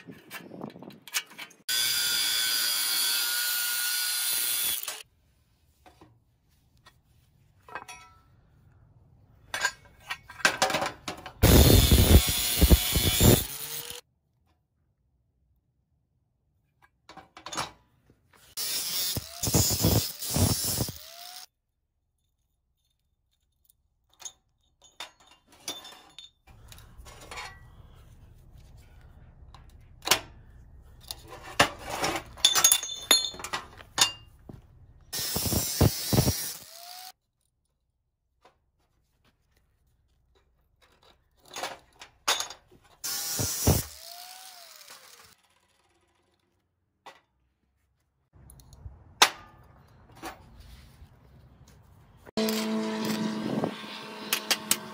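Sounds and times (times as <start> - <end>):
angle grinder cutting steel: 1.7 - 5.0, 11.4 - 14.0, 18.5 - 21.5, 35.2 - 37.2, 43.0 - 45.8, 52.4 - 54.9
steel pieces clinking on table: 32.4 - 34.3.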